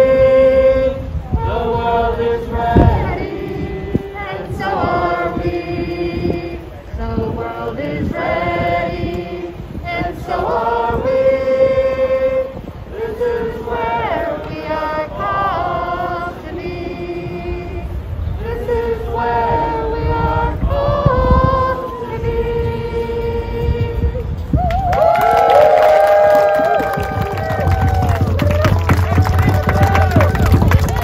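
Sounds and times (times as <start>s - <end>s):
crowd singing slow song: 0.0s - 24.6s.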